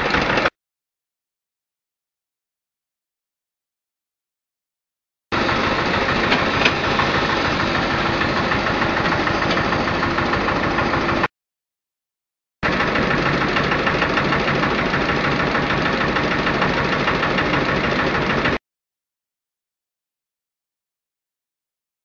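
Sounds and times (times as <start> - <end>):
small engine running: 0.0 - 0.5, 5.4 - 11.3, 12.6 - 18.6.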